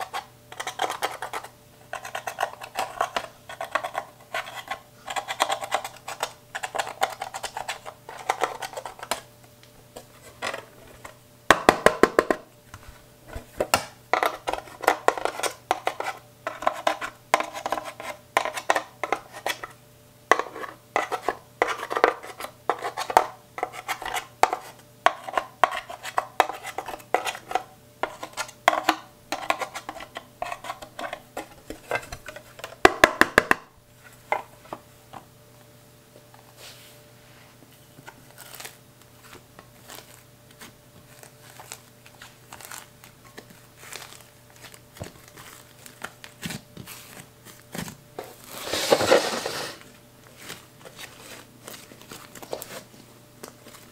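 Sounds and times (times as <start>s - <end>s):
metal tool scraping eyeshadow: 0.0s - 9.2s.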